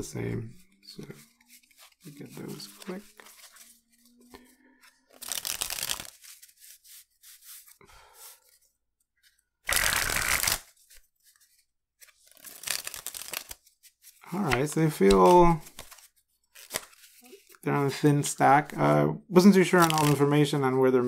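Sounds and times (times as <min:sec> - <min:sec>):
soft card handling: 0:00.6 - 0:09.4, 0:10.4 - 0:18.0, 0:19.6 - 0:20.3
cards riffle-shuffled: 0:01.1 - 0:04.5, 0:05.1 - 0:08.6, 0:09.7 - 0:17.9, 0:19.6 - 0:20.3.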